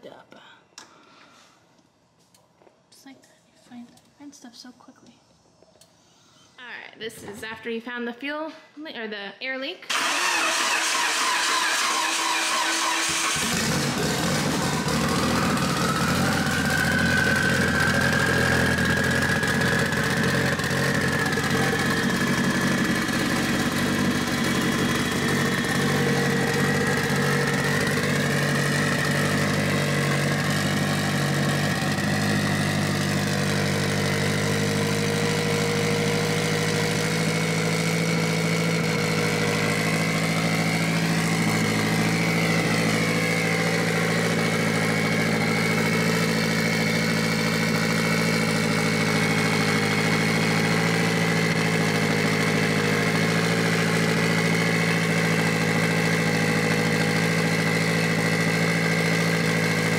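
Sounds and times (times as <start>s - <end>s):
car engine idling: 9.9s - 59.9s
high whine: 13.9s - 33.5s.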